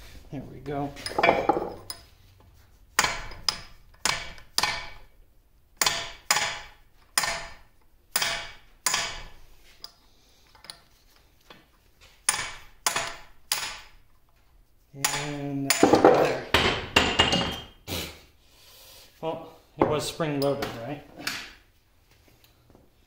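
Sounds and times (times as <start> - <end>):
hammer striking metal punch: 3.0 - 5.0, 5.8 - 9.4, 12.3 - 13.9, 15.0 - 17.6.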